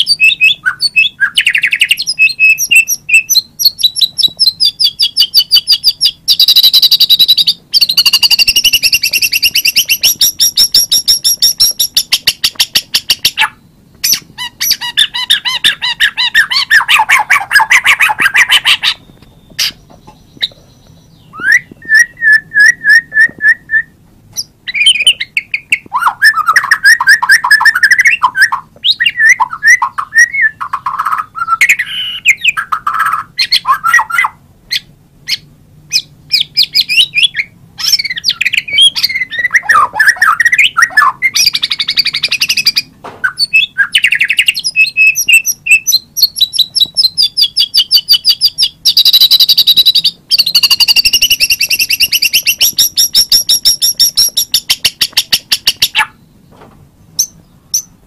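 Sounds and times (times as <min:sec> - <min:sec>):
bird singing varied song: 0:00.0 - 0:58.0.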